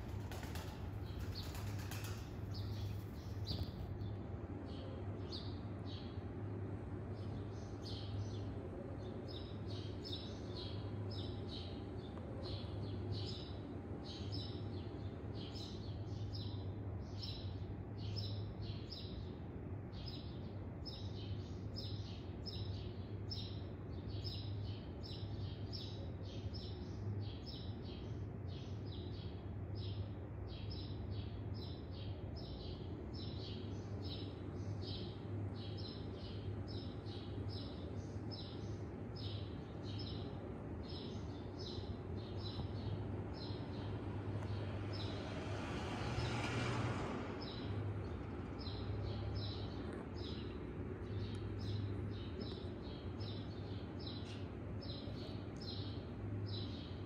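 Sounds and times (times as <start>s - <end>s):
bird chirping: 0.0s - 6.2s
steady low hum: 0.0s - 16.2s.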